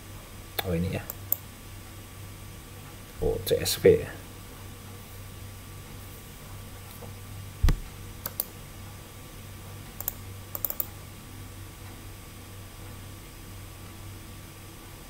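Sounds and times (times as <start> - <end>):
low steady hum: 0.0 - 15.0
computer mouse clicking: 7.7 - 8.6, 10.0 - 11.0.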